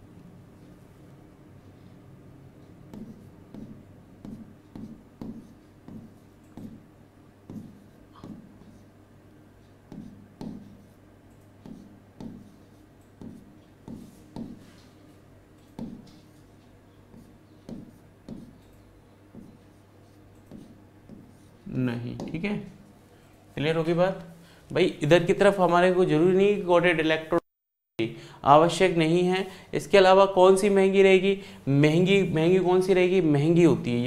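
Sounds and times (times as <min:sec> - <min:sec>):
low steady hum: 0:00.0 - 0:26.3
stylus tapping and scratching tablet: 0:02.6 - 0:09.0, 0:09.6 - 0:22.6.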